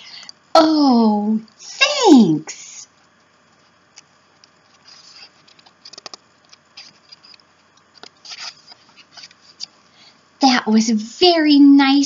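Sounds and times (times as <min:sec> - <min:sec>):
paper book page turning: 0:04.7 - 0:09.8.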